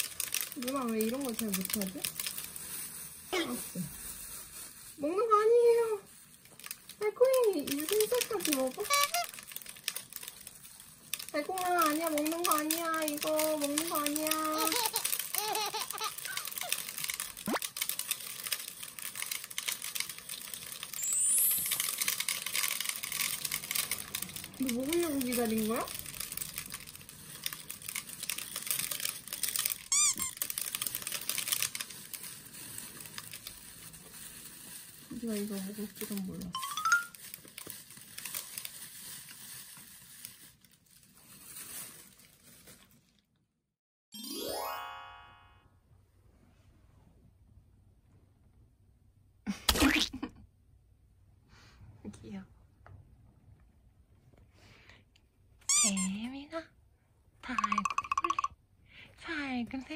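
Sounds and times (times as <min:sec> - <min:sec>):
rising whistle effect: 0:21.0 - 0:21.7
rising sparkly chime: 0:21.0 - 0:21.9, 0:36.6 - 0:37.2, 0:44.2 - 0:45.6.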